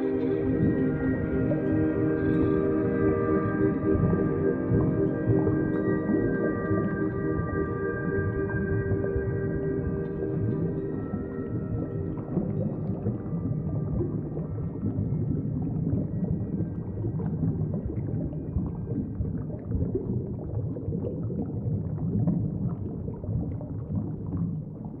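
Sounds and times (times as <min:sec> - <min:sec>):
water churning and gurgling: 0:00.0 - 0:25.0.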